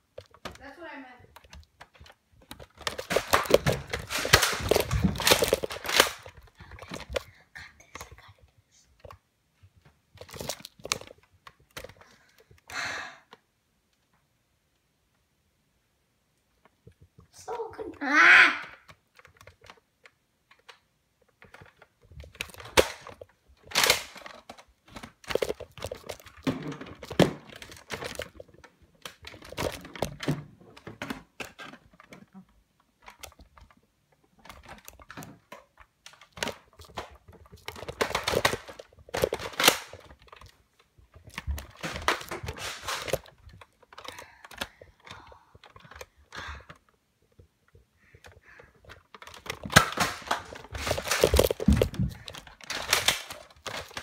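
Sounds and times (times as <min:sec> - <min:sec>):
phone handling thuds and rustling: 0:48.9 - 0:54.0.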